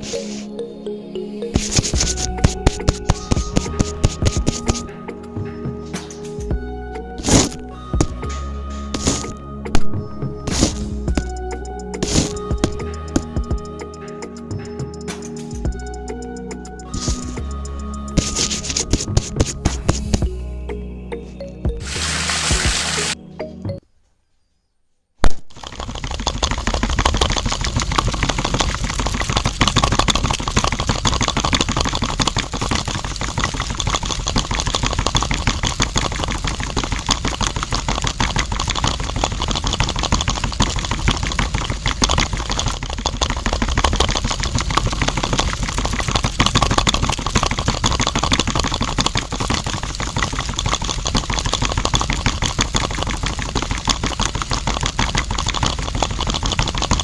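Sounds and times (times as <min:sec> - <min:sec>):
mixer drum rattling: 0:25.5 - 0:57.0.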